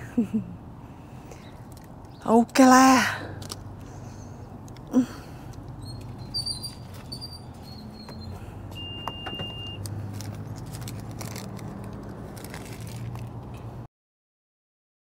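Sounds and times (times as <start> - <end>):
steady beep: 7.8 - 9.8.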